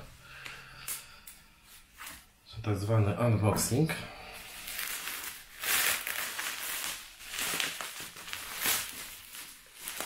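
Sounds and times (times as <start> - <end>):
bubble wrap crinkling: 4.4 - 10.0.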